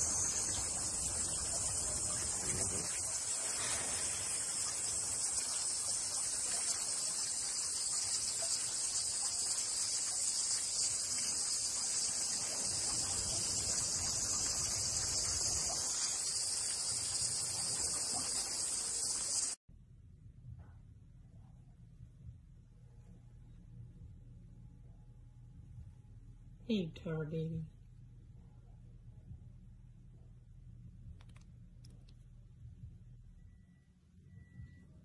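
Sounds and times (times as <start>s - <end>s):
high-pitched shrill hiss: 0.0s - 19.6s.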